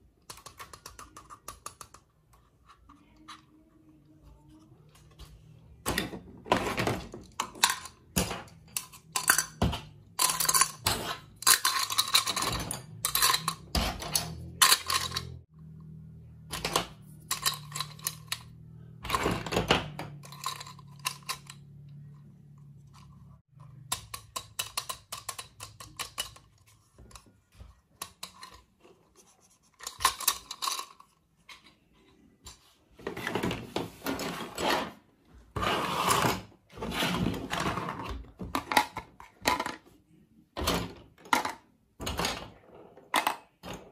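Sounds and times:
plastic toy pieces clattering: 0:06.5 - 0:15.5, 0:16.5 - 0:21.9, 0:23.8 - 0:28.8, 0:29.8 - 0:31.7.

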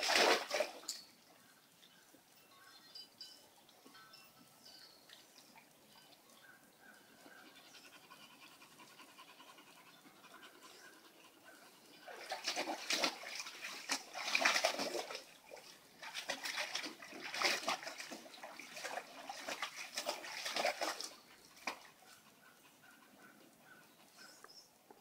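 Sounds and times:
dog splashing in water: 0:00.0 - 0:01.0, 0:12.0 - 0:22.0.

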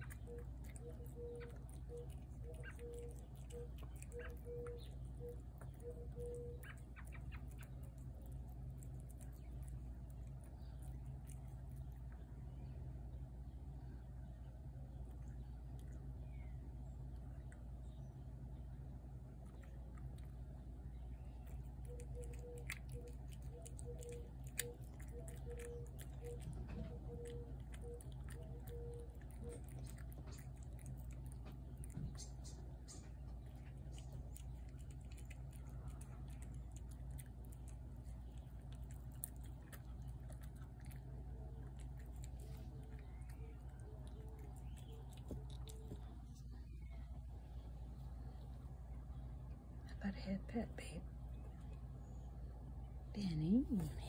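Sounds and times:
bird repeating low note: 0:00.0 - 0:07.2
cat chewing food: 0:00.0 - 0:13.5, 0:17.0 - 0:49.1
faint steady hum: 0:00.0 - 0:54.0.

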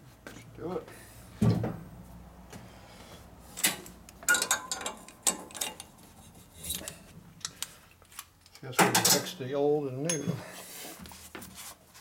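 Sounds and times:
low shop hum: 0:00.0 - 0:08.8.

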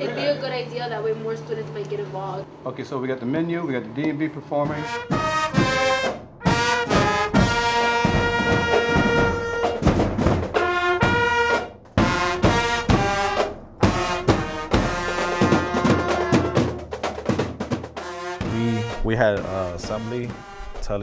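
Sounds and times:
brass instruments playing: 0:04.2 - 0:21.0
drums: 0:04.4 - 0:21.0.

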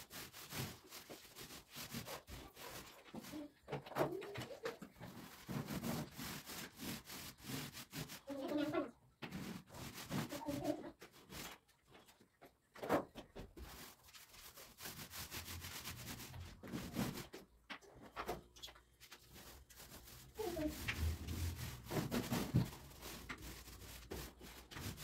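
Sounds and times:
paint roller rubbing on wall: 0:00.0 - 0:11.6, 0:13.6 - 0:17.4, 0:19.0 - 0:25.0.

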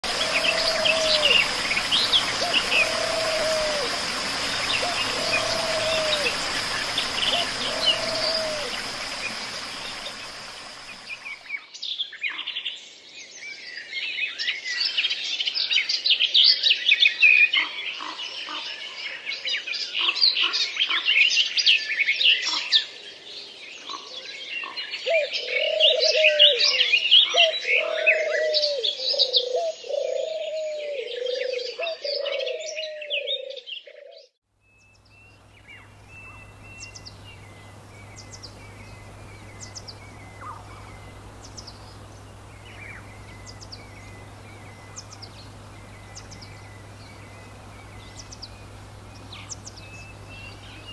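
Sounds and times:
birds chirping and singing: 0:00.0 - 0:11.5, 0:24.6 - 0:50.9
steady low hum: 0:00.0 - 0:11.5, 0:34.9 - 0:50.9
low repeated bird call: 0:00.0 - 0:11.6, 0:25.1 - 0:50.9.

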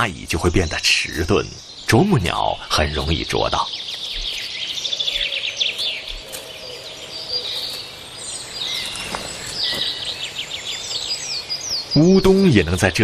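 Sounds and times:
small birds chirping and trilling: 0:00.0 - 0:13.0.

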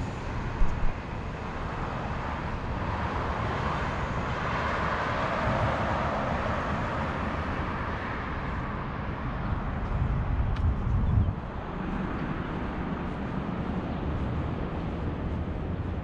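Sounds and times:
road traffic: 0:00.0 - 0:16.0.

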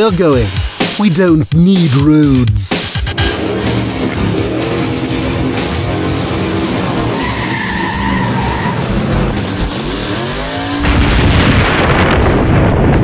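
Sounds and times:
car engine revving: 0:03.0 - 0:12.5
tires squealing: 0:03.2 - 0:11.0
loud rushing boom: 0:10.8 - 0:13.0.

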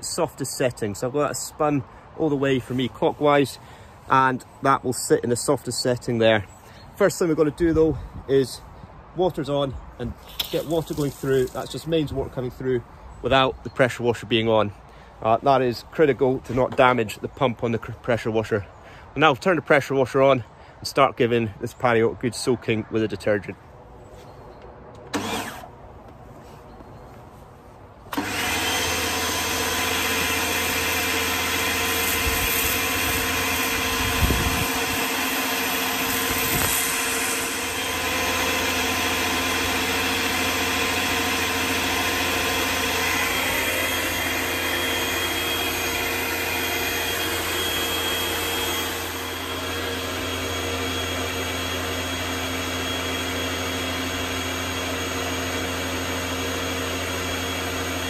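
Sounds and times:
pressure washer motor whine: 0:10.1 - 0:11.8, 0:25.1 - 0:25.7, 0:28.1 - 0:58.0
water spray hissing: 0:10.2 - 0:11.8.

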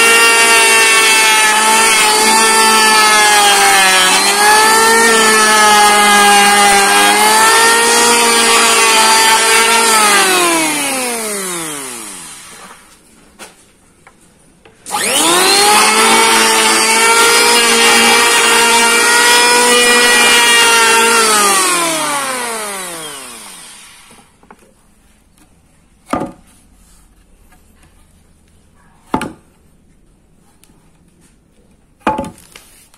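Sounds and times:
electric planer motor whining: 0:00.0 - 0:12.8, 0:14.9 - 0:24.3.

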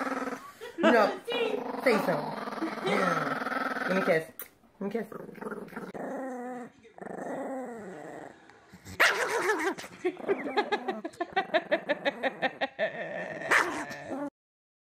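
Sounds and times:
dog growling: 0:00.0 - 0:00.5, 0:01.3 - 0:04.2, 0:05.1 - 0:14.3
dog barking: 0:09.0 - 0:09.6, 0:13.5 - 0:13.9.

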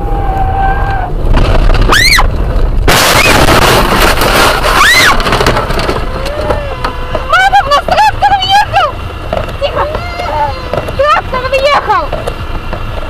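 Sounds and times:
car crash with shattering glass: 0:02.8 - 0:06.6
person screaming: 0:06.1 - 0:07.5.

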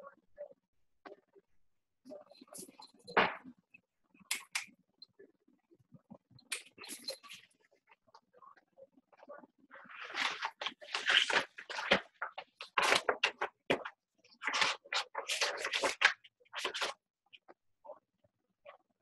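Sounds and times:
rustling and scraping at a desk: 0:02.1 - 0:03.6, 0:06.5 - 0:07.7, 0:09.7 - 0:17.0.

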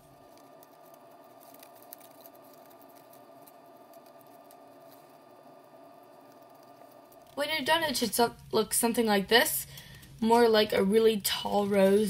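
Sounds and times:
paper rustling and crinkling: 0:00.0 - 0:05.2
steady low hum: 0:00.0 - 0:12.0.

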